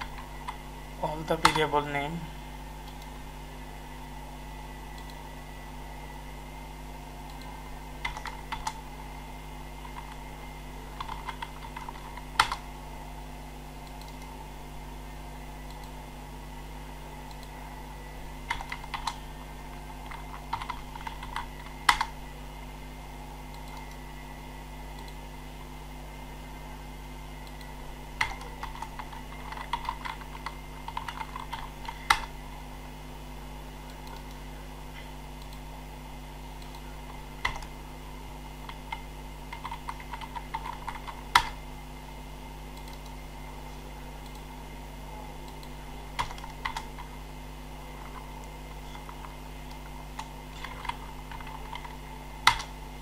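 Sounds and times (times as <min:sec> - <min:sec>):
low electrical hum: 0:00.0 - 0:53.0
typing on keyboard: 0:08.0 - 0:08.8, 0:11.0 - 0:12.6, 0:18.5 - 0:19.2, 0:20.0 - 0:22.1, 0:28.2 - 0:32.3, 0:38.6 - 0:41.6.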